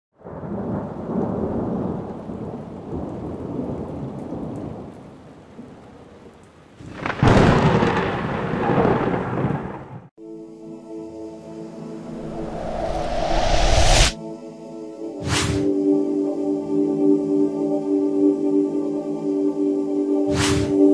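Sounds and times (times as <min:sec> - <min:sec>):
rolling thunder: 0:00.2 - 0:04.8, 0:06.9 - 0:10.0, 0:12.1 - 0:14.1
rain: 0:00.2 - 0:10.1
loud thunderclap: 0:06.9 - 0:10.0
music: 0:10.2 - 0:13.0, 0:14.1 - 0:20.9.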